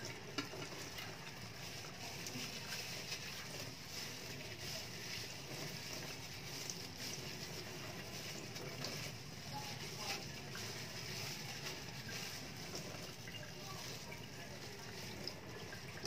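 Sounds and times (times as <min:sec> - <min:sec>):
tap water trickling into steel sink: 0:00.0 - 0:01.3.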